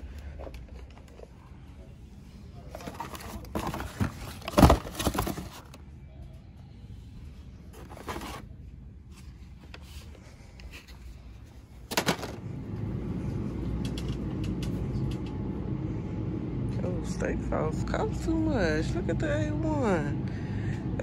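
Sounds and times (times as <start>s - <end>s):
store background rumble: 0.0s - 21.0s
items knocking and rustling: 2.7s - 5.8s, 7.7s - 8.5s, 11.8s - 12.4s.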